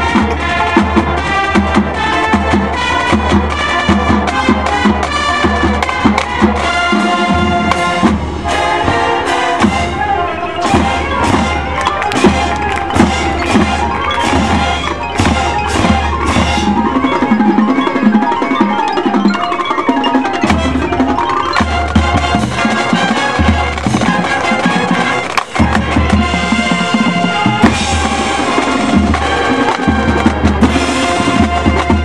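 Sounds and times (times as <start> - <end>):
marching band playing: 0.0 - 32.0
marimba and glockenspiel: 10.3 - 25.0.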